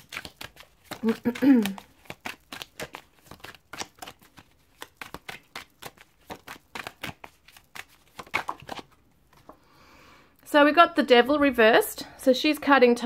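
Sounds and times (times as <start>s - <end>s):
cards being shuffled: 0.0s - 9.6s.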